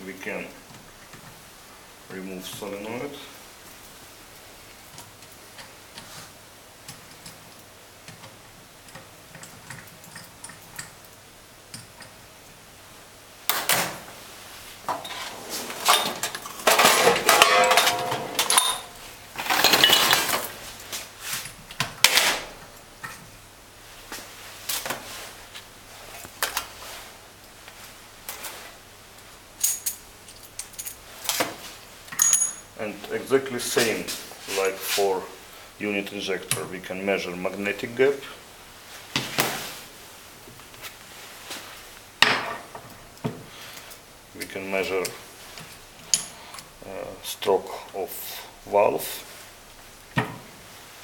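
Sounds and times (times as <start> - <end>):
metal parts clattering on steel: 14.9 - 20.6.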